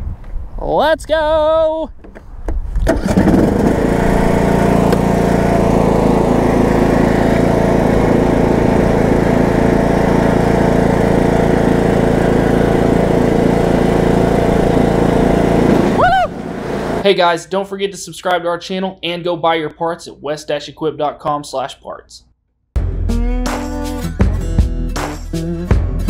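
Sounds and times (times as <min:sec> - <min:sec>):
lawn tractor engine running: 0:02.8 - 0:17.0.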